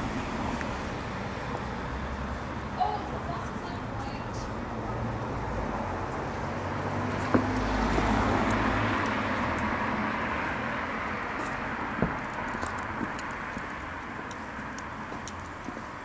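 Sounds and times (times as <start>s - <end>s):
car driving past: 5.0s - 11.2s.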